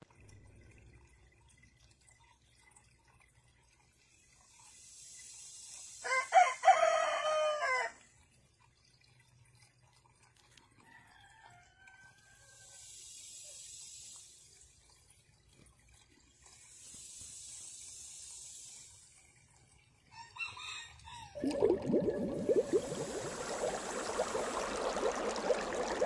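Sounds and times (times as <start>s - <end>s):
distant rooster crowing: 6.1s - 8.0s.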